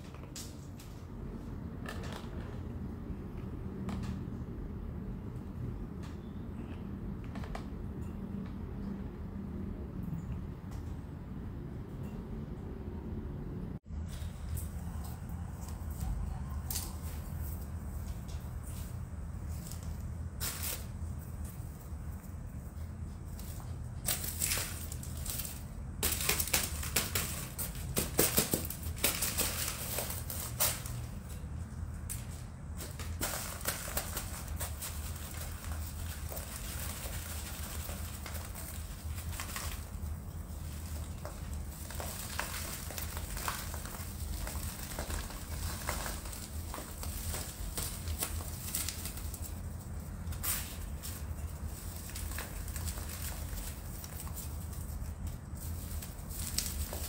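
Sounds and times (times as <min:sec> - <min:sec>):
plastic plant pot crackling: 0:13.9 - 0:57.0
soil falling on plastic sheet: 0:14.0 - 0:22.3, 0:23.0 - 0:57.0
small ticks and rustles: 0:14.1 - 0:57.0.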